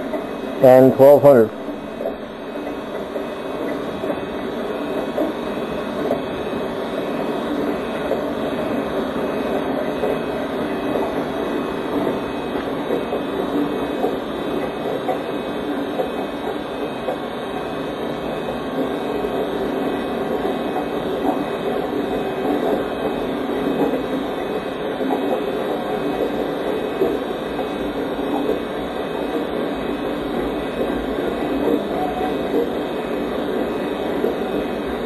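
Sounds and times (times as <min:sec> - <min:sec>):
train rumbling on rails: 0:00.0 - 0:35.0.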